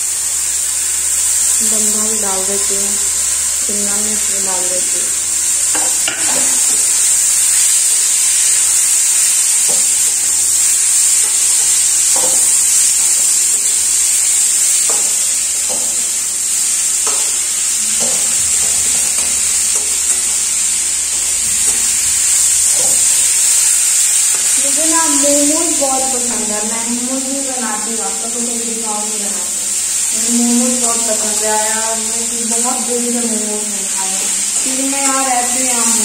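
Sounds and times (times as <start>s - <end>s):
vegetables sizzling in hot oil: 0.0s - 36.0s
spatula scraping and knocking pan: 5.7s - 7.2s, 9.2s - 24.6s.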